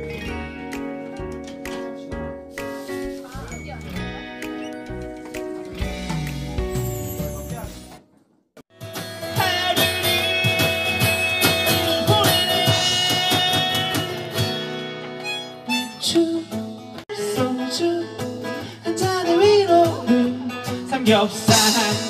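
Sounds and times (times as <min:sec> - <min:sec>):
acoustic band with strummed guitar: 0:00.0 - 0:08.0, 0:08.6 - 0:22.0
person singing over guitar: 0:09.1 - 0:14.6, 0:15.8 - 0:22.0.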